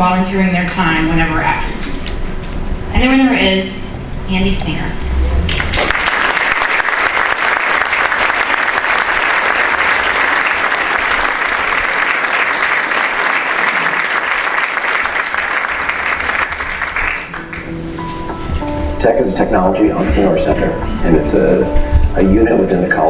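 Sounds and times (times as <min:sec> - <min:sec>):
audience applauding: 0:05.5 - 0:17.8.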